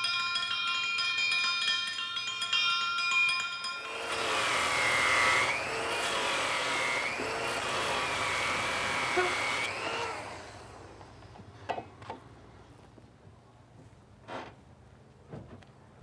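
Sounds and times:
power grinder whining on metal: 3.8 - 11.5.

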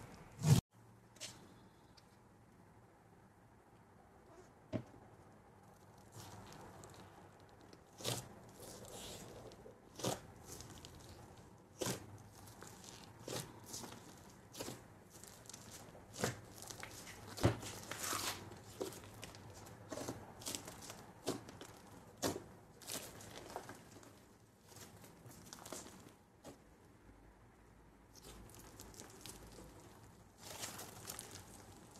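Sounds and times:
slime crackling and snapping: 6.0 - 26.1, 28.2 - 31.9
soft crinkly hiss: 28.1 - 31.9.

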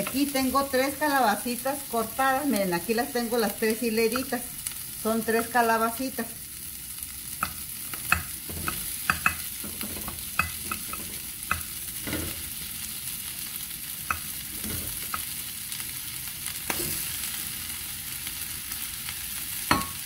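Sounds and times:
butter and oil sizzling in pan: 0.0 - 20.0
vegetable slices clattering in pan: 7.4 - 12.4, 14.1 - 15.3.

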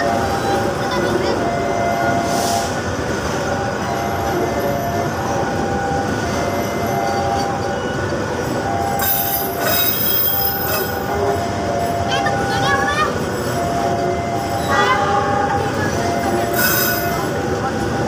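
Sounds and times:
train wheels rumbling on rail: 0.0 - 18.0
high brake squeal: 2.0 - 2.8, 6.8 - 17.5
metallic wheel squeals: 7.0 - 12.1, 16.2 - 17.5.

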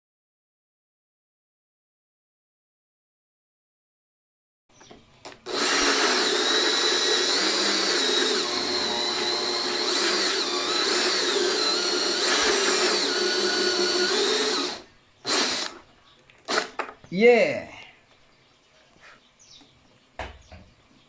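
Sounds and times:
electric drill cutting plastic: 5.3 - 15.8, 16.5 - 16.8.

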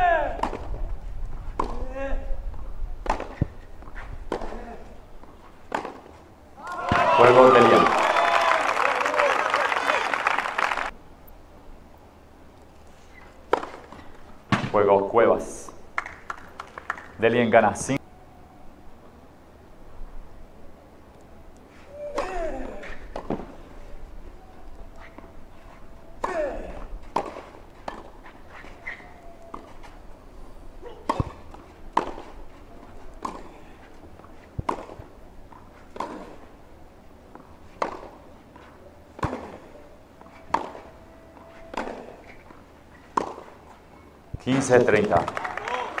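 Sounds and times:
tennis ball struck by racket: 0.3 - 0.8, 1.5 - 1.9, 3.0 - 3.6, 4.3 - 4.7, 5.6 - 6.2, 13.5 - 14.8, 22.1 - 23.6, 26.2 - 30.0, 31.0 - 32.4, 33.2 - 33.6, 34.5 - 36.5, 37.7 - 43.6.

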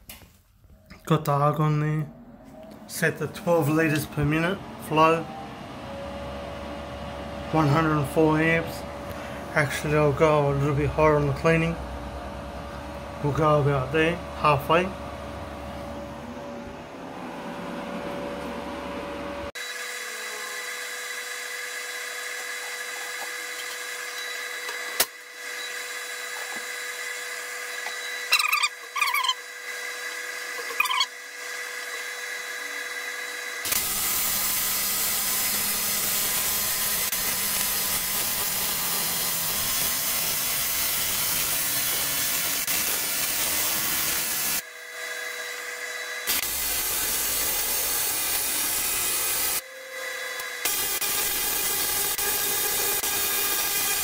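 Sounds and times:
welder idling whine: 0.7 - 54.0
welding arc buzzing hiss: 19.5 - 32.0, 33.6 - 44.7, 46.1 - 49.6, 50.4 - 54.0.

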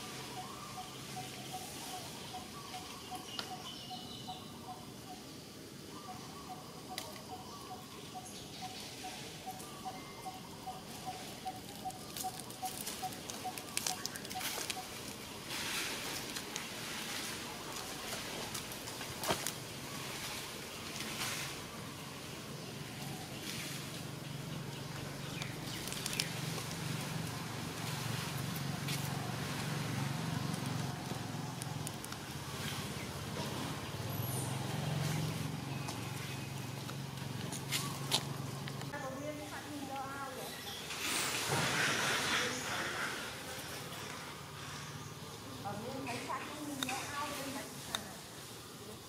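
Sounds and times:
rustling hiss: 10.5 - 49.0.

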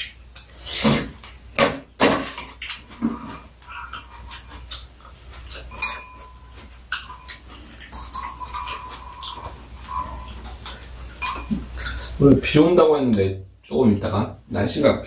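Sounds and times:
wet chewing: 2.5 - 12.5.

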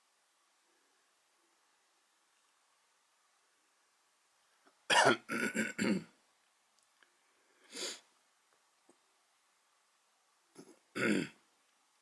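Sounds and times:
person coughing: 4.9 - 6.1, 10.6 - 11.4
person clearing throat: 4.9 - 6.2, 10.6 - 11.4.

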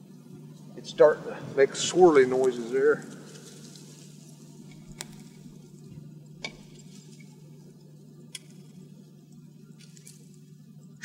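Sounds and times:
faint steady hum: 0.0 - 11.0
twigs snapping in fire: 2.3 - 5.6, 8.3 - 8.8, 9.7 - 10.4.

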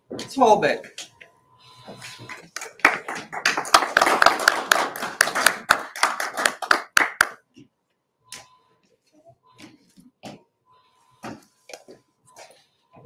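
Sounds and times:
small group applauding: 2.3 - 7.5.

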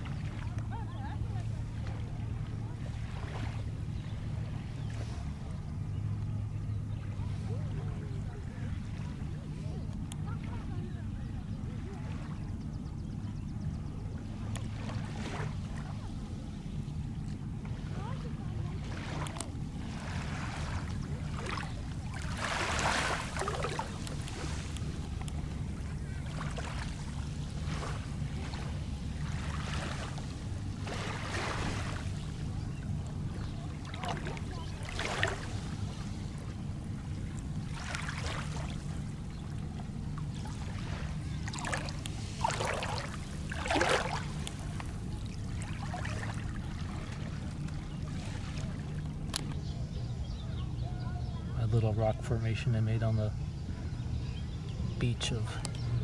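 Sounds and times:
waves lapping on pebbly shore: 17.8 - 25.5, 26.2 - 32.4, 33.4 - 36.6, 37.2 - 39.3, 40.0 - 49.0.

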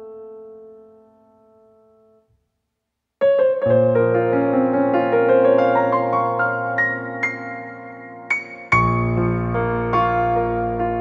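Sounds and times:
piano music: 3.2 - 11.0.

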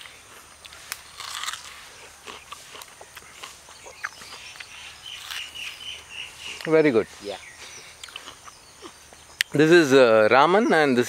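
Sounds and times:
crunchy apple bite and chewing: 0.0 - 6.7, 7.9 - 9.5.

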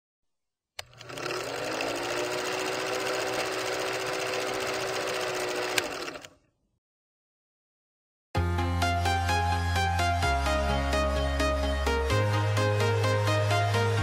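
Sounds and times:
film projector rattling: 0.8 - 6.3.

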